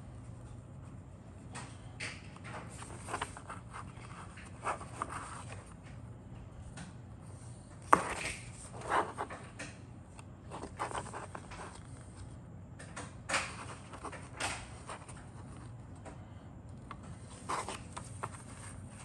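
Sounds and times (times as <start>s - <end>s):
paper pages rustling: 2.0s - 6.0s, 7.8s - 9.7s, 10.5s - 12.3s, 13.3s - 15.7s, 17.1s - 19.0s
paper snapping: 12.9s - 15.1s.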